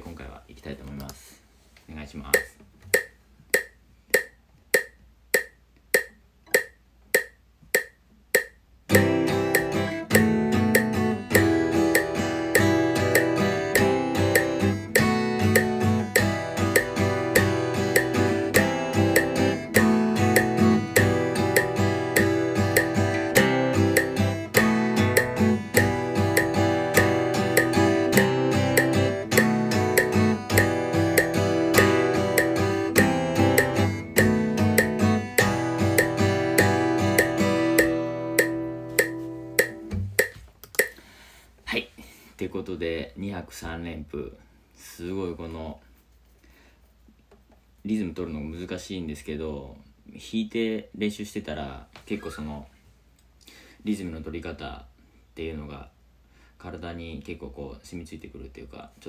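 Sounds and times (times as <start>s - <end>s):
steady clicks: 2.4s - 41.0s
acoustic guitar strumming: 8.9s - 41.0s.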